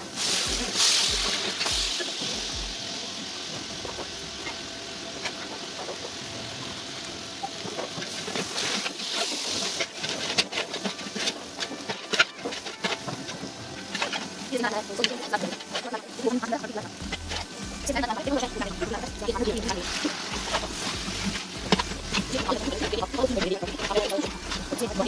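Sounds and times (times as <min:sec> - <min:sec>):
meat and onions sizzling in oil: 0:00.0 - 0:25.0
spoon scraping pot: 0:18.7 - 0:25.0.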